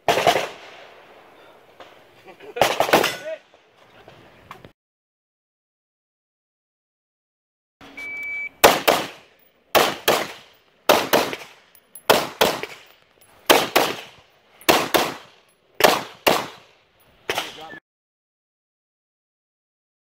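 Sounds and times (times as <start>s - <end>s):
rifle shots with echoes: 0.0s - 1.2s, 8.6s - 12.9s, 13.5s - 16.7s.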